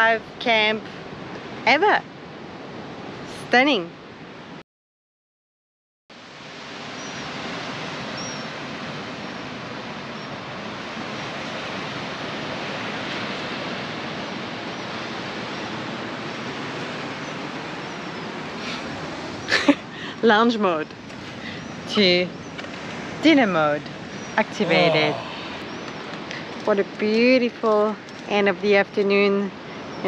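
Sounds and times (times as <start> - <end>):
wind: 0.0 - 4.6, 6.1 - 30.0
ocean surf: 6.2 - 26.7.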